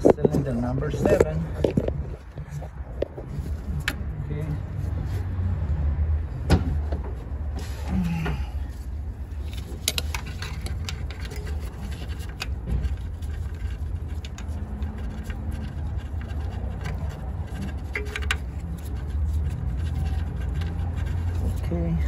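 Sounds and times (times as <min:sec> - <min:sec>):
steady low rumble: 0:00.0 - 0:22.0
small clicks and scrapes of hand work: 0:09.3 - 0:21.7.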